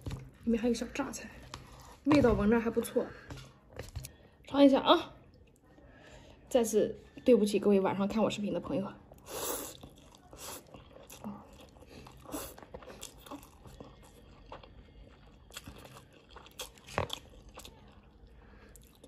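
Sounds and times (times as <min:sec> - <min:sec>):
wet chewing: 0:09.1 - 0:19.0.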